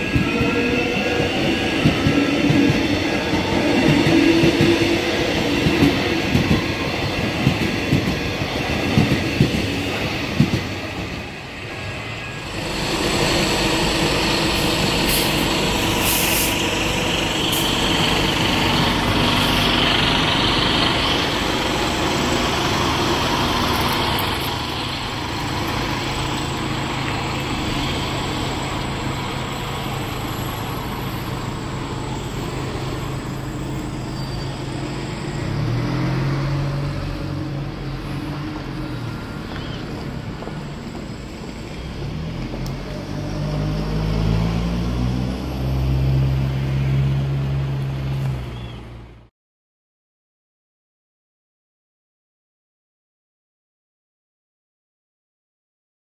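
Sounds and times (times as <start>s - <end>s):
bus engine hum: 12.3s - 49.3s
air brakes hissing: 12.6s - 18.2s.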